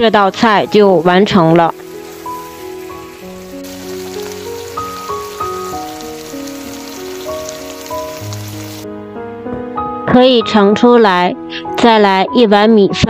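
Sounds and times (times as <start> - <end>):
food sizzling in a wok: 0.0 - 8.9
soft background music: 0.0 - 13.0.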